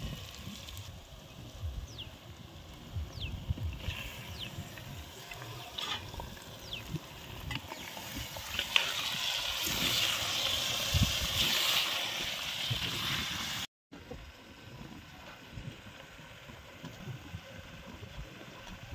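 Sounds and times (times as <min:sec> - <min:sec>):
meat sizzling in hot oil: 0:03.4 - 0:13.7
steel ladle scraping a pot: 0:05.6 - 0:06.2.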